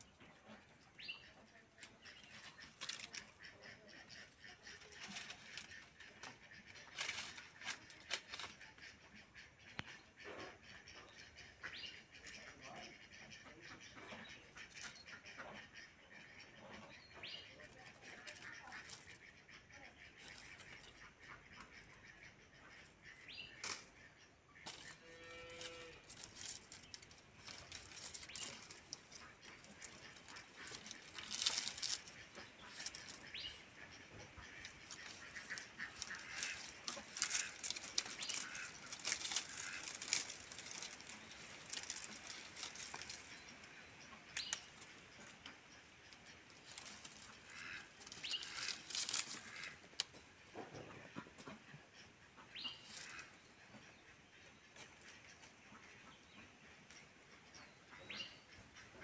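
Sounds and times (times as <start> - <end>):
dry palm fronds crackling: 1.8 - 9.0, 18.1 - 19.5, 24.6 - 50.1.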